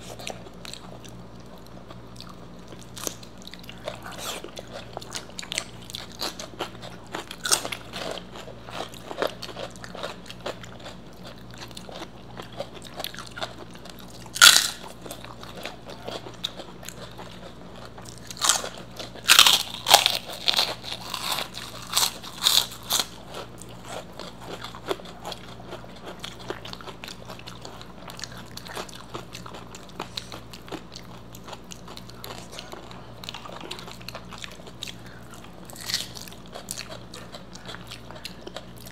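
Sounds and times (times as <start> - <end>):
chewing crisp food: 0.0 - 38.9
loud crunches: 19.3 - 23.1.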